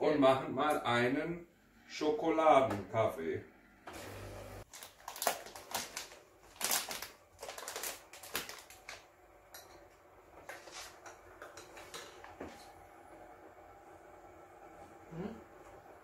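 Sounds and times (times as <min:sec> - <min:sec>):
foil bags crinkling: 0:04.7 - 0:09.1.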